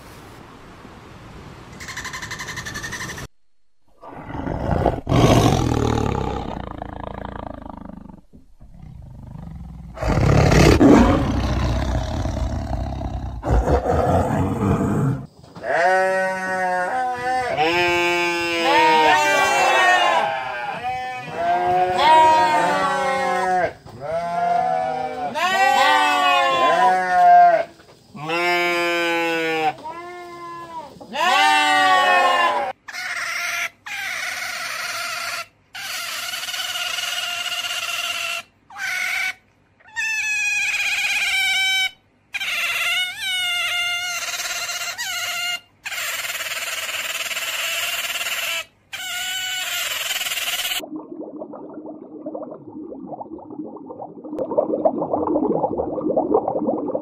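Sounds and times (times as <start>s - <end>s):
sheep and lambs bleating: 15.6s - 32.8s.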